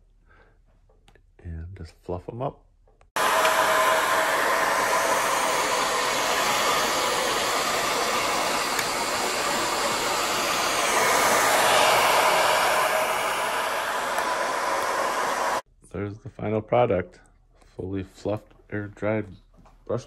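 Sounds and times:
hair dryer blowing: 0:03.2 - 0:15.6.

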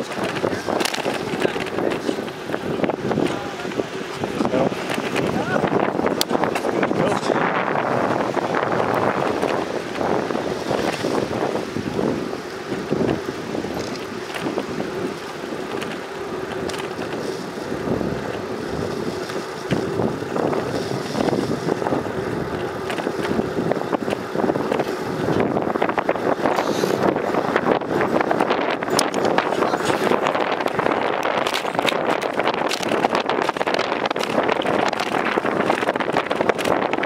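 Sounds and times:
small rattles: 0:00.0 - 0:07.4
tyres rolling on paved path: 0:00.0 - 0:37.0
wind rushing over microphone: 0:00.0 - 0:37.0.

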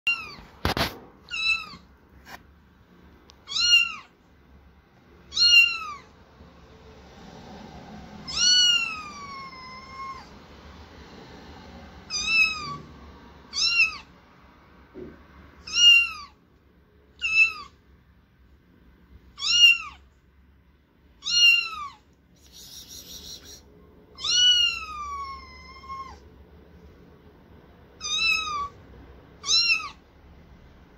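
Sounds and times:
kitten meowing: 0:00.1 - 0:00.5, 0:01.3 - 0:01.9, 0:03.4 - 0:04.2, 0:05.2 - 0:06.1, 0:08.2 - 0:10.3, 0:12.1 - 0:12.9, 0:13.5 - 0:14.1, 0:15.6 - 0:16.4, 0:17.2 - 0:17.8, 0:19.4 - 0:20.1, 0:21.2 - 0:26.3, 0:28.0 - 0:28.8, 0:29.4 - 0:30.0.

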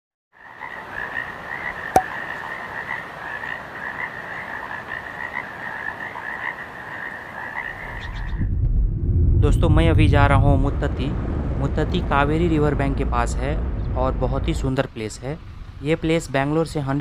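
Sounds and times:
frogs croaking: 0:00.3 - 0:08.4.

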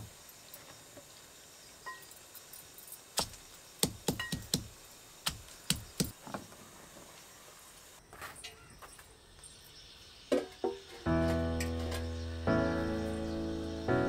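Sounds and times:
faint clink: 0:01.8 - 0:03.0
pestle knocking on stone: 0:03.2 - 0:04.7.

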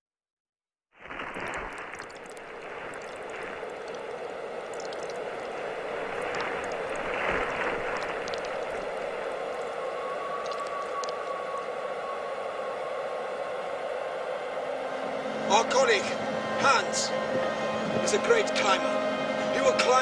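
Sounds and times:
faint crackles: 0:01.0 - 0:11.4
steady rushing noise: 0:01.1 - 0:19.5.

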